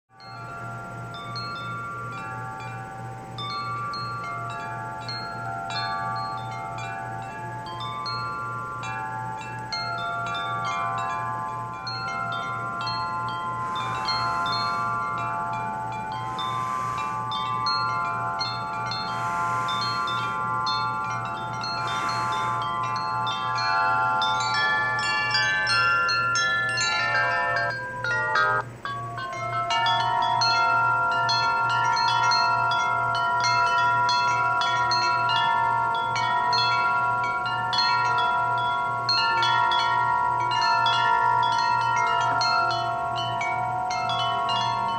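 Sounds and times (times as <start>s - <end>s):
steady low hum: 0.1s - 44.9s
wind chimes ringing: 0.1s - 44.9s
gusts of wind: 12.6s - 25.8s.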